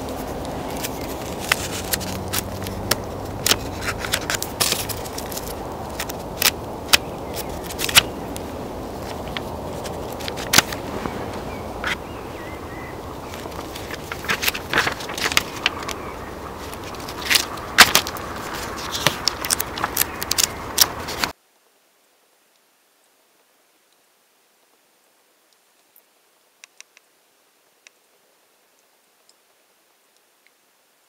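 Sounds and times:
handling clicks and crackles: 0.0 - 21.4
steady hiss: 0.0 - 31.0.

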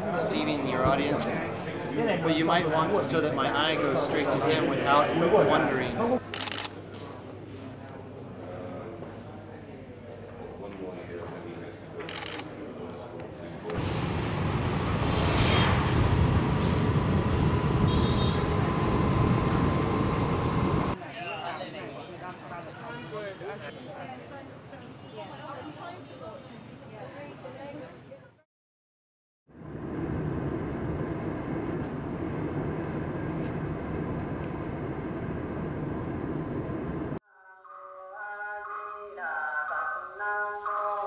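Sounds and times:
moving vehicle travel noise: 13.7 - 21.0, 29.5 - 37.2
scooter engine and road noise: 13.7 - 21.0.

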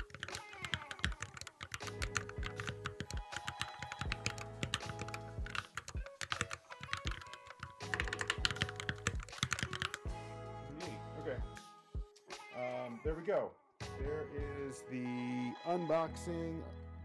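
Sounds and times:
fast typing on mechanical keyboard: 0.0 - 10.0
background music: 0.0 - 17.0.

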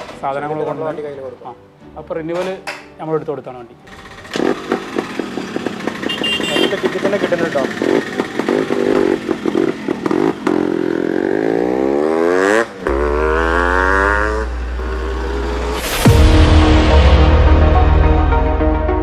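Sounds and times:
motorcycle engine revving: 3.9 - 16.2.

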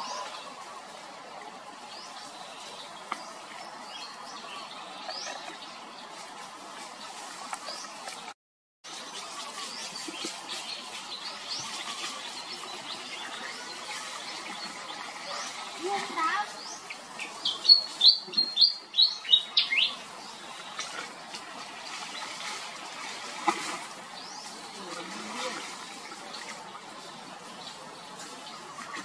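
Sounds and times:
birds chirping: 1.5 - 23.1
outdoor background hiss: 8.9 - 28.7.

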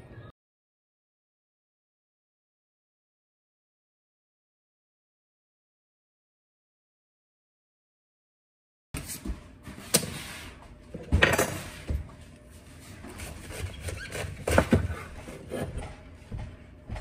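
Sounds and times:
knife cutting cabbage: 13.1 - 15.7.

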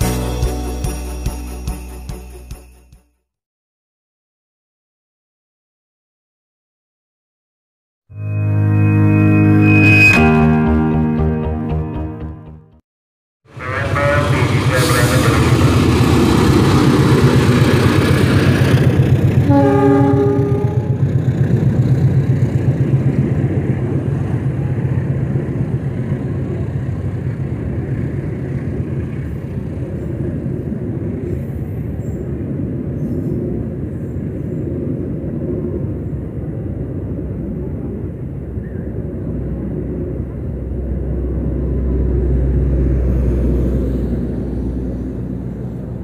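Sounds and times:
train carriages rumbling past: 13.5 - 46.0.

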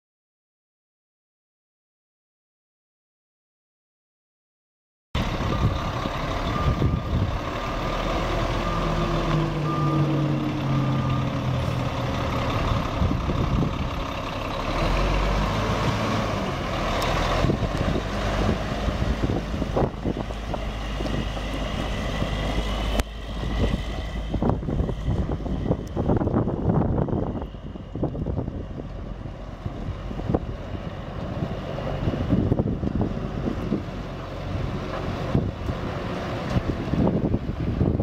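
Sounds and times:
dump truck diesel engine: 5.2 - 38.0
backup alarm beeping: 8.6 - 11.5.

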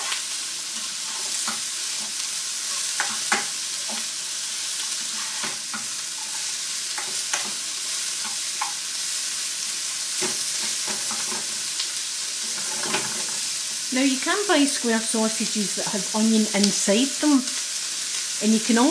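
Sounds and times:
onion sizzling in a pan: 0.0 - 18.9
spatula scraping and tapping: 1.1 - 4.1, 8.2 - 8.8, 10.2 - 11.5, 12.6 - 13.3.

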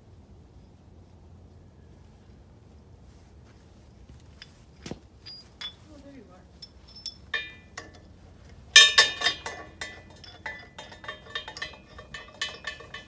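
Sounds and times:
metallic clinks from press handle: 6.6 - 8.1, 8.8 - 13.0.

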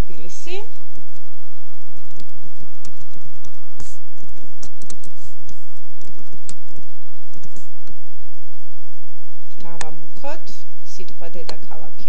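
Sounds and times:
typing on computer keyboard: 1.8 - 5.2.

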